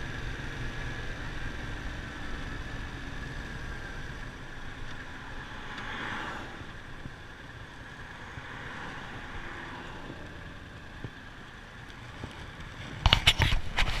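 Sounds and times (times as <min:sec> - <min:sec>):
motorcycle engine: 0:00.0 - 0:14.0
wind noise on microphone: 0:12.8 - 0:14.0.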